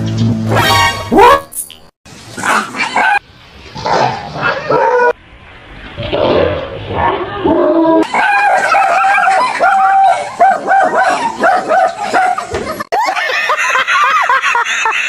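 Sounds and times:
dog barking and yapping: 1.1s - 1.6s, 2.4s - 3.2s, 8.0s - 12.5s
people laughing: 8.1s - 15.0s.

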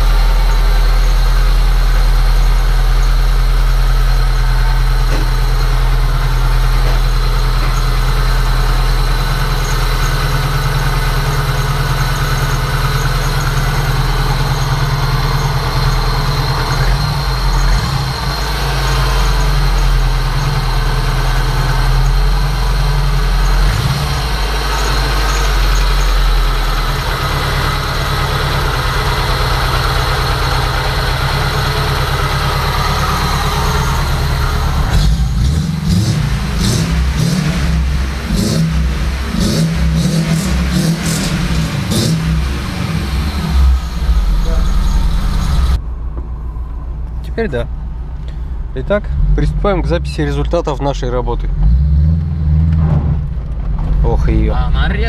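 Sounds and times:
car engine idling unevenly: 0.0s - 55.0s.

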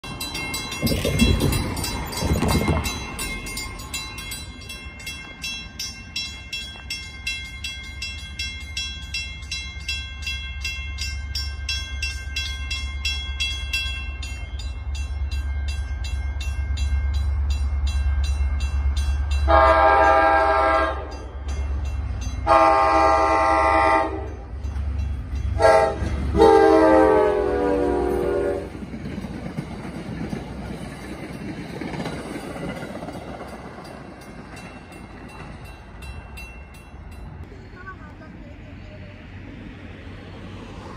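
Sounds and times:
crossing bell ringing: 0.0s - 38.0s
low rumble of train: 0.0s - 40.9s
train horn: 19.4s - 21.2s, 22.4s - 24.4s, 25.6s - 28.8s.

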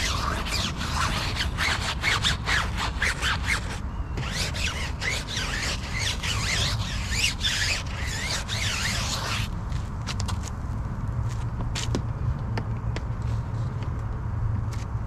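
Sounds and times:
rapid squeaky rubbing: 0.0s - 9.5s.

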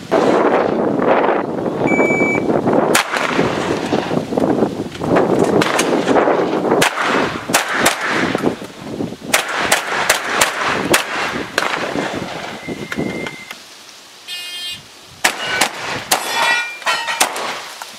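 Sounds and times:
shot timer beep: 1.9s - 2.5s
shotgun shots: 2.9s - 4.0s, 5.6s - 8.5s, 9.3s - 12.5s, 15.2s - 16.5s, 17.2s - 17.7s.

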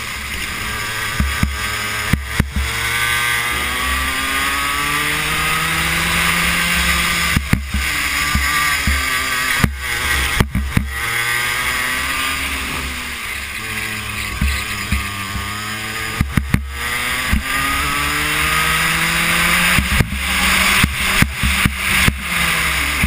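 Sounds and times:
go-kart engine accelerating: 0.0s - 23.0s
sharp knocks: 7.3s - 11.2s, 14.3s - 17.7s.

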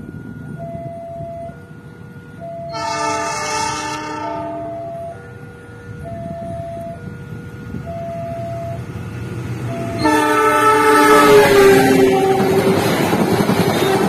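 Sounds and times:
train rumble: 0.0s - 14.0s
alternating two-note tone: 0.1s - 8.9s
locomotive horn blast: 2.6s - 8.8s, 9.7s - 13.0s.

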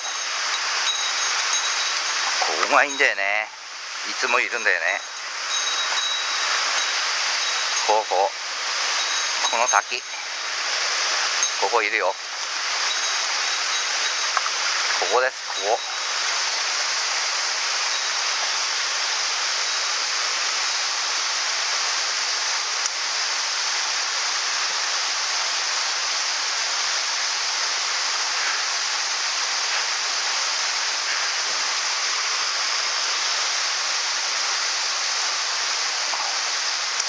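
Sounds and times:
stream running over stones: 0.0s - 37.0s
waterfall rushing into pool: 0.0s - 37.0s.

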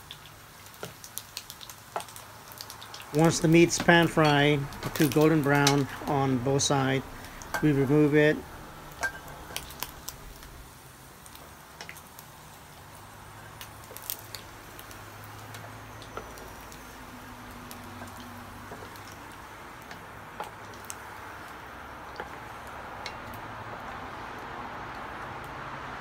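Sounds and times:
oil sizzling in a wok: 0.0s - 26.0s.

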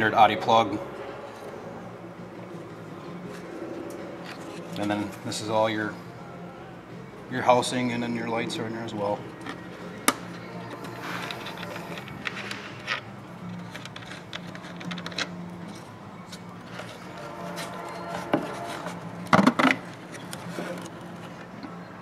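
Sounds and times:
steady low hum: 0.0s - 22.0s
plastic clicks and rubbing: 10.8s - 15.4s.

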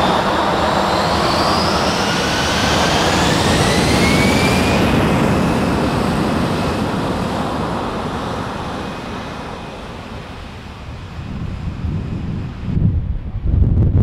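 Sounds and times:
jet engine roar: 0.0s - 14.0s
wind buffeting microphone: 10.2s - 14.0s.

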